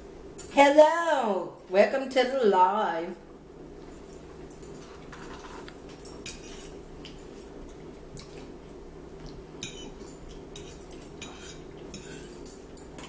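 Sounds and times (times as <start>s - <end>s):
low steady hum: 0.0s - 13.0s
fork scraping a plate: 4.8s - 6.8s, 9.6s - 12.6s.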